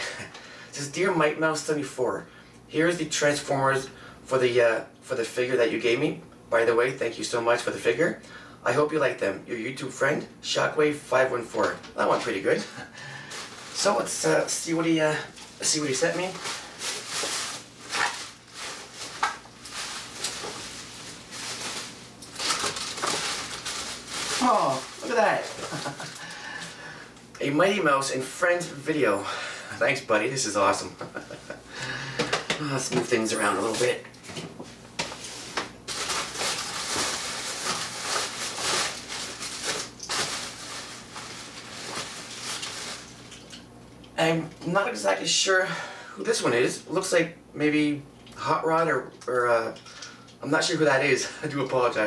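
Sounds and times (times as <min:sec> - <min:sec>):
plastic wrap crinkling: 0:12.8 - 0:26.9, 0:35.0 - 0:43.6.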